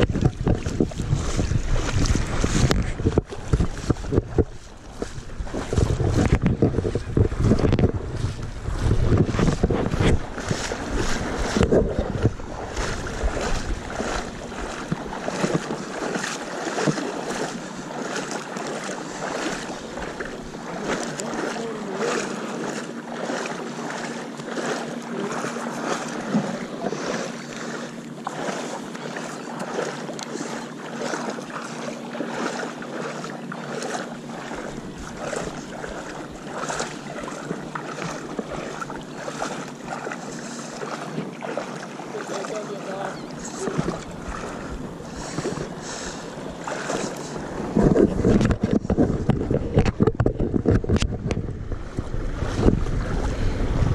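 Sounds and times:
wind buffeting microphone: 0.0 - 23.4, 34.1 - 40.2, 42.5 - 53.9
seawater lapping and sloshing: 0.0 - 53.9.

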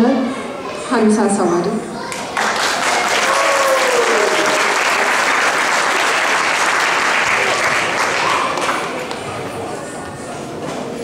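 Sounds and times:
audience clapping: 2.1 - 9.4.

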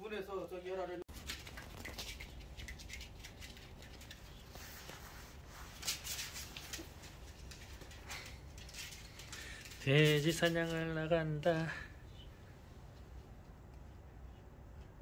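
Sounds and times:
puppy scuffling on cardboard: 1.1 - 8.3.

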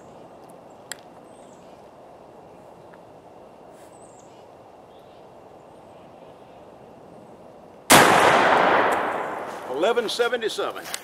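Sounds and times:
faint outdoor background: 0.0 - 11.0
shotgun shot echoing: 7.9 - 9.8.

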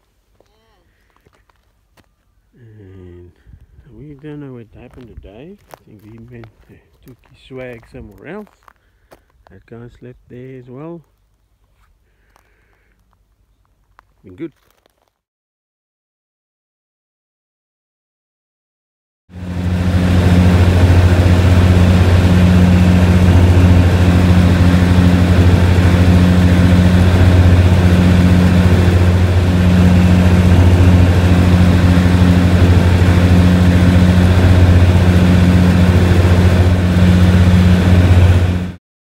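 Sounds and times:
aircraft engine droning: 19.3 - 38.8.

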